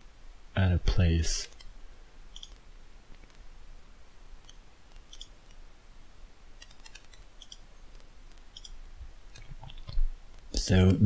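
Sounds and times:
computer mouse clicks: 6.6s - 8.7s.

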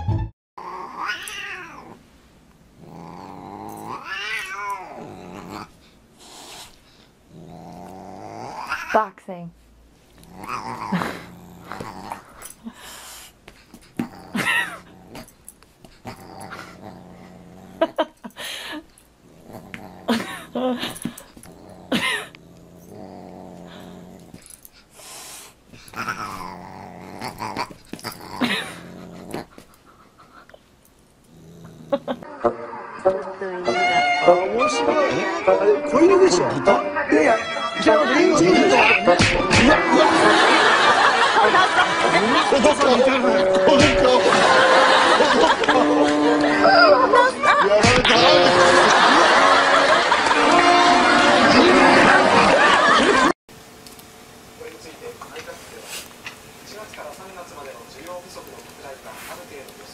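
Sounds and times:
cat growling and yowling: 0.6s - 2.0s, 2.8s - 5.7s, 7.3s - 9.0s, 10.2s - 12.5s, 14.0s - 15.3s, 16.0s - 18.1s, 19.3s - 24.6s, 25.8s - 29.6s.

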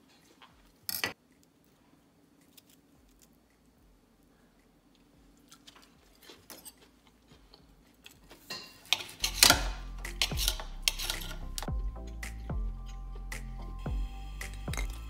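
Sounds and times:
knife and fork scraping plate: 8.4s - 11.7s
background music with steady beat: 9.2s - 15.0s.

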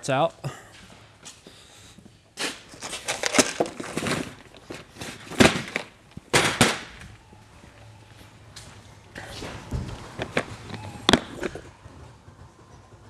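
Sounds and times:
plastic packaging crinkling: 2.7s - 7.0s.

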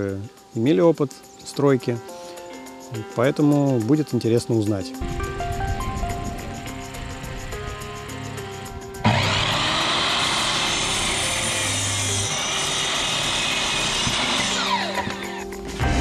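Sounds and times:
electric power saw cutting wood: 6.3s - 16.0s.

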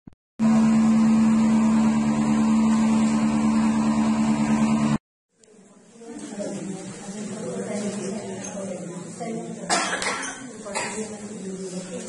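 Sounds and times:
engine drone: 0.4s - 5.0s.

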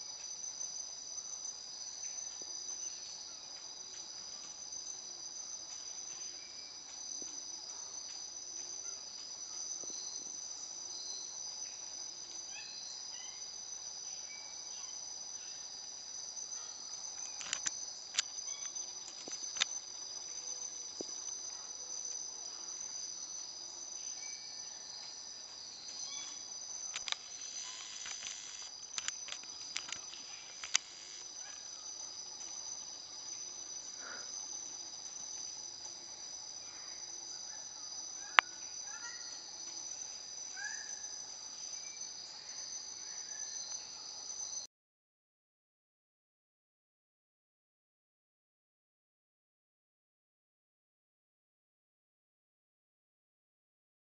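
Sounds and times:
insects chorus: 0.0s - 44.7s
faint bird chirps: 12.5s - 13.4s, 26.0s - 26.4s, 36.6s - 39.5s
sharp clicks: 17.3s - 19.7s, 26.9s - 31.2s.

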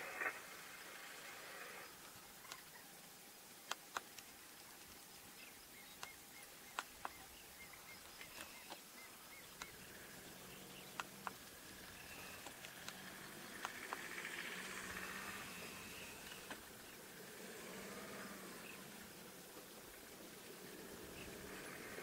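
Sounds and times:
open-air hiss: 0.0s - 22.0s
sharp clicks: 3.6s - 5.0s, 5.9s - 7.2s, 9.5s - 9.8s, 10.8s - 16.6s
small bird chirping: 3.7s - 19.0s.

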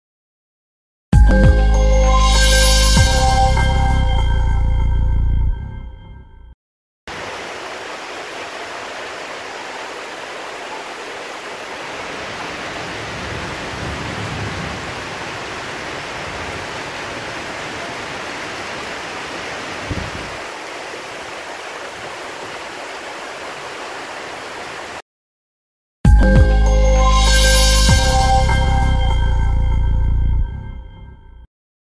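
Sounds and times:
heavy rain pouring: 7.1s - 25.0s
running water: 7.1s - 25.0s.

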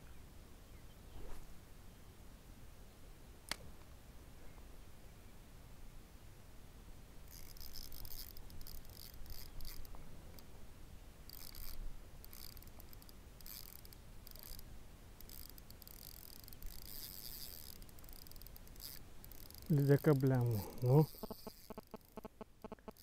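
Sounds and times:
insect chirping: 7.3s - 9.9s, 11.3s - 23.0s.

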